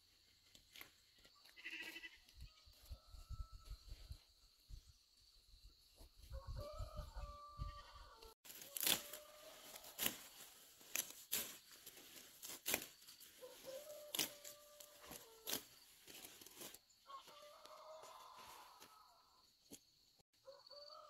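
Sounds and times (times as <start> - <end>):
scissors snipping vegetable stems: 8.5 - 16.5.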